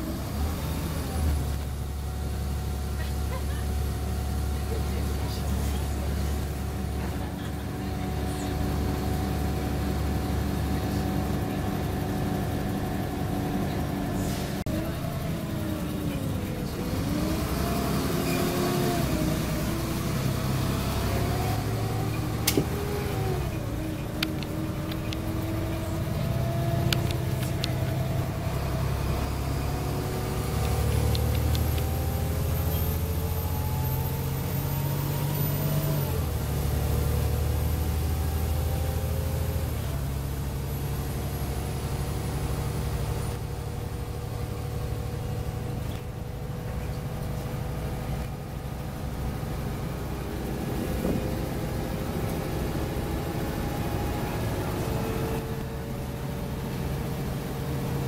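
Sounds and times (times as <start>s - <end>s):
bus engine rumble and whine: 0.0s - 58.0s.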